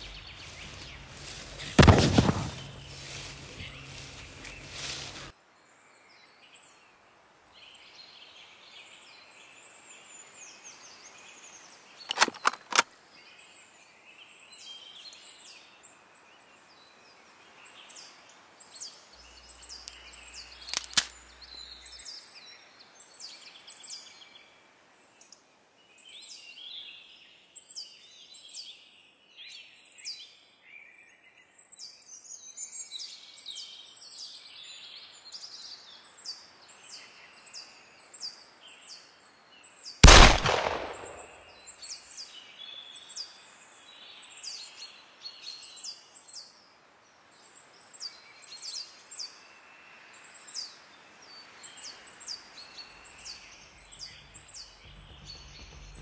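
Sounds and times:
birds chirping and calling: 0.0s - 5.3s
faint outdoor hiss: 0.0s - 29.5s, 32.0s - 56.0s
sharp cracks: 1.2s - 3.4s, 12.1s - 12.9s, 20.6s - 21.2s, 40.0s - 41.5s.

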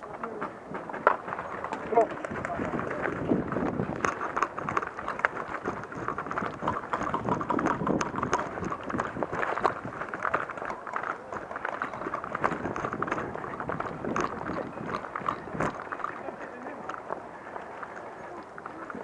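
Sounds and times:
running footsteps on grass: 0.0s - 19.0s.

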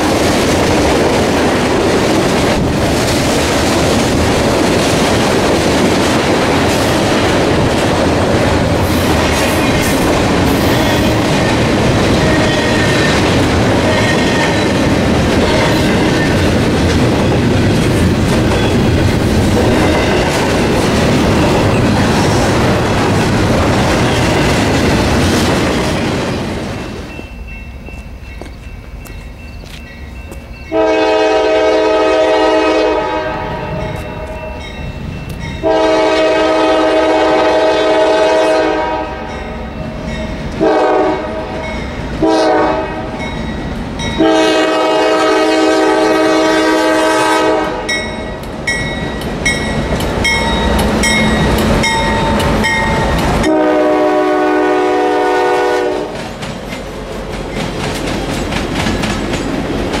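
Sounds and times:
freight cars rumbling: 0.0s - 30.6s
locomotive air horn blasts: 15.4s - 15.9s, 30.7s - 34.6s, 35.6s - 39.3s, 40.6s - 41.6s, 42.2s - 43.1s, 44.2s - 48.0s, 53.4s - 56.2s
wheels clacking over rail joints: 56.1s - 60.0s.

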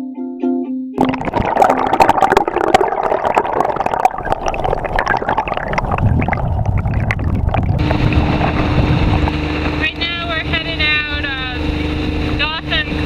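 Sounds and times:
underwater gurgling and bubbling: 1.0s - 11.6s.

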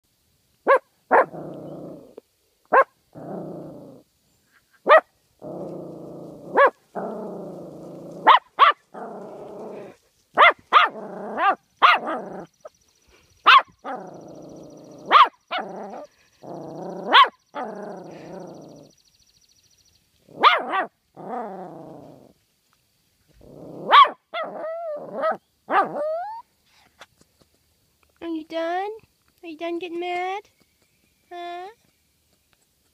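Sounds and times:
dog barking: 0.7s - 1.4s, 2.7s - 2.9s, 4.8s - 5.1s, 6.5s - 6.8s, 8.2s - 8.8s, 10.4s - 12.2s, 13.4s - 14.0s, 15.0s - 16.1s, 17.0s - 17.4s, 20.4s - 20.9s, 23.9s - 24.4s
dog growling: 1.1s - 2.2s, 3.1s - 4.0s, 5.4s - 10.0s, 10.8s - 12.6s, 13.8s - 18.9s, 20.3s - 22.3s, 23.4s - 26.4s.

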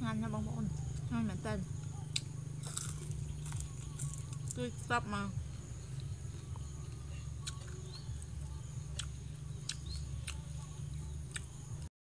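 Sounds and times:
steady high hum: 0.0s - 11.9s
crunching and clicks of fried food: 1.8s - 4.6s, 5.8s - 11.9s.

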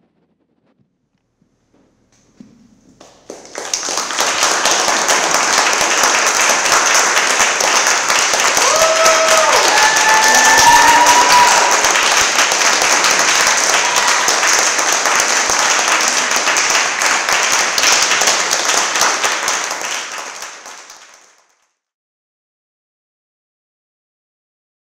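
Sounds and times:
audience applauding: 3.0s - 21.6s
audience cheering and whooping: 4.8s - 14.8s.

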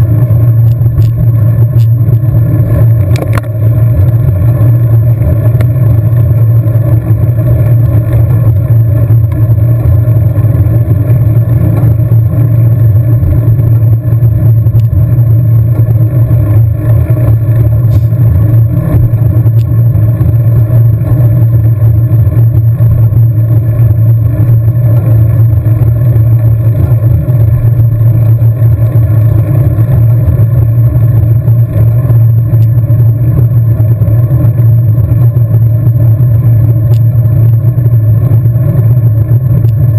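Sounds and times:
wind rumble on microphone: 0.0s - 39.9s.

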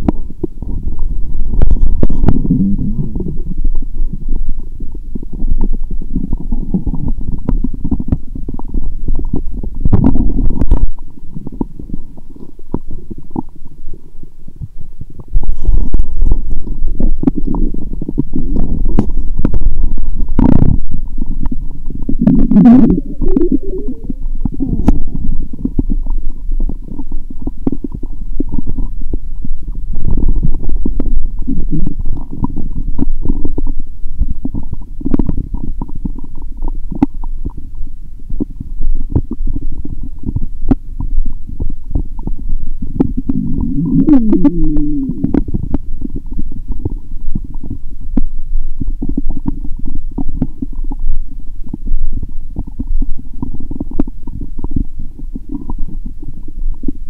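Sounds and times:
stomach gurgling and rumbling: 0.0s - 57.0s
squeaky sliding gurgle: 22.0s - 28.9s, 43.1s - 45.8s.

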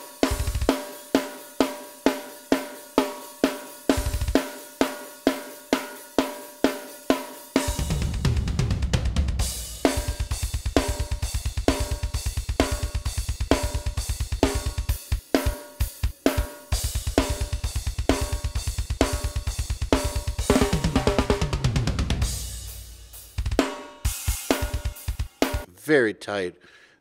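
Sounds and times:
fast kick drum: 0.0s - 0.8s, 3.9s - 4.5s, 7.6s - 25.7s
cymbals: 0.0s - 8.4s, 9.4s - 25.7s.

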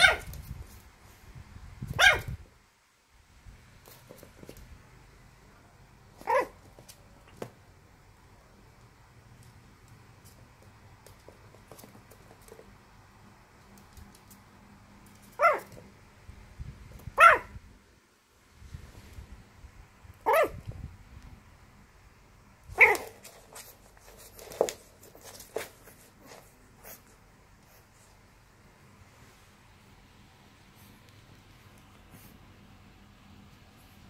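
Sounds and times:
puppy barking: 0.0s - 0.3s, 1.9s - 2.4s, 6.2s - 6.6s, 15.3s - 15.8s, 17.1s - 17.6s, 20.2s - 20.6s, 22.8s - 23.2s
puppy yipping softly: 0.0s - 0.3s, 2.0s - 2.4s, 6.2s - 6.6s, 15.4s - 15.8s, 17.2s - 17.5s, 20.2s - 20.6s, 22.8s - 23.2s.

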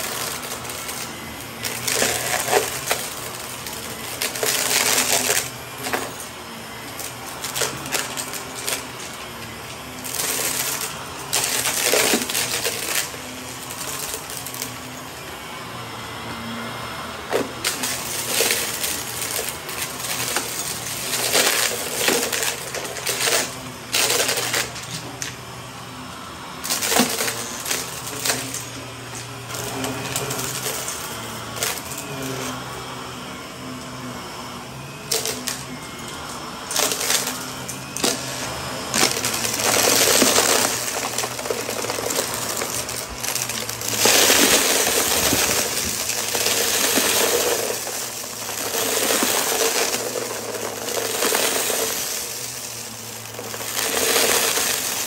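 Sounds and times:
debris crunching and rattling: 0.0s - 14.9s, 17.3s - 25.4s, 26.6s - 32.6s, 35.1s - 55.0s
vacuum cleaner running: 0.0s - 55.0s.

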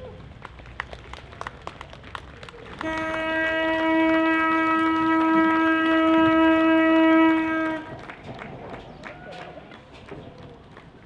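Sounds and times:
boat horn long blast: 2.8s - 8.0s.

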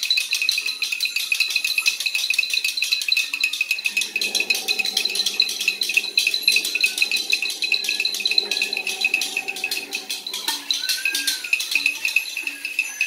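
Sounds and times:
fast steady rattling: 0.0s - 13.0s
low buzzing drone: 3.6s - 11.4s
shrill pulsing tone: 3.6s - 11.8s.

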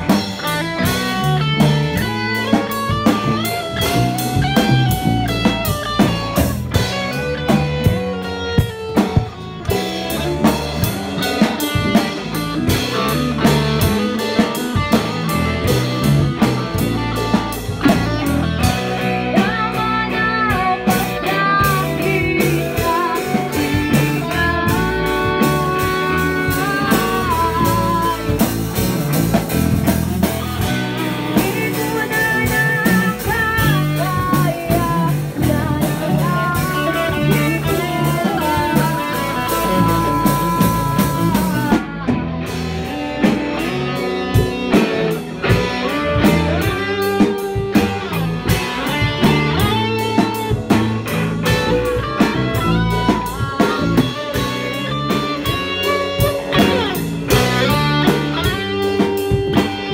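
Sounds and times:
bass guitar: 0.0s - 59.9s
drum kit: 0.0s - 59.9s
electric guitar lead line: 0.0s - 59.9s.

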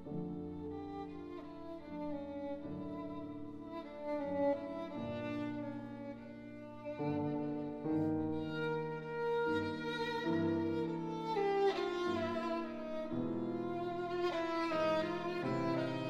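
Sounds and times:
piano accompaniment: 0.0s - 16.0s
violin long bowed notes: 0.3s - 16.0s.

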